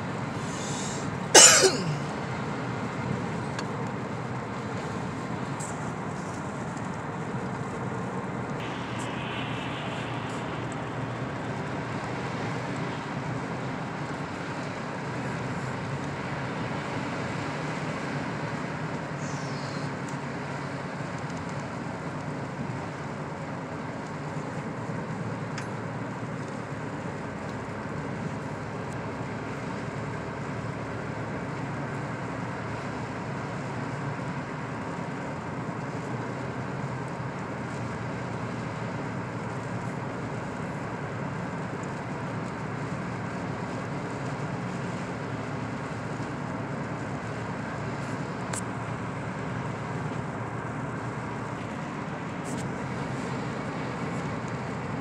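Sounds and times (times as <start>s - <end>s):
car engine running: 0.0s - 19.8s
tyres on snowy road: 0.0s - 55.0s.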